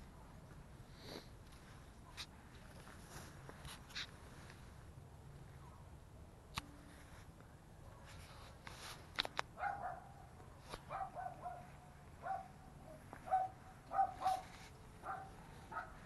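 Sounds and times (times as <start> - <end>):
dog barking: 9.6 - 16.0.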